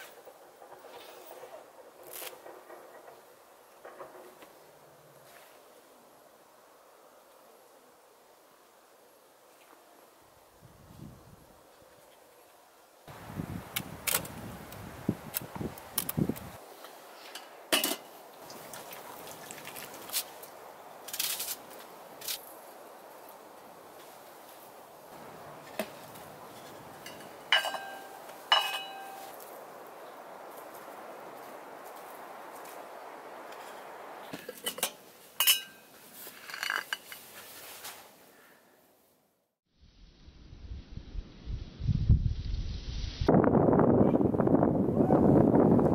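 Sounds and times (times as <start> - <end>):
metal pot and knife clinking: 27.0 - 29.2, 34.5 - 35.8
steady hiss: 35.0 - 43.4.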